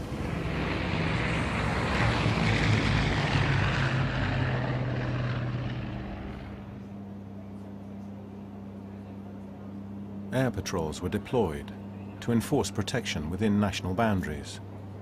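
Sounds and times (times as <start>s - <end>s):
propeller aircraft flying low past: 0.0s - 12.2s
low engine drone in aircraft cabin: 0.0s - 15.0s.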